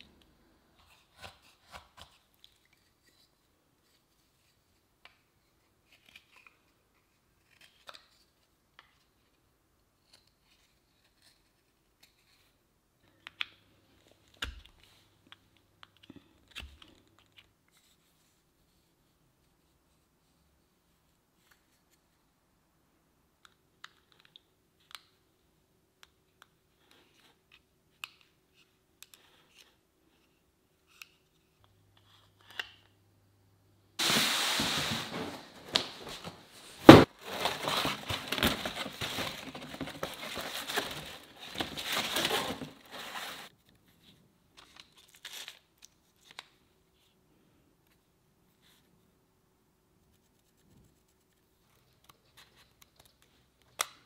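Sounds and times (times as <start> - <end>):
rummaging in a cardboard box: 34.0 - 43.5.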